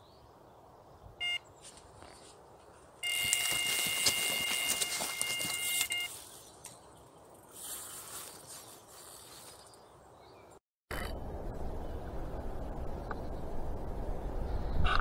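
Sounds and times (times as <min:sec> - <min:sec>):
faint outdoor hiss: 0:00.0 - 0:10.5.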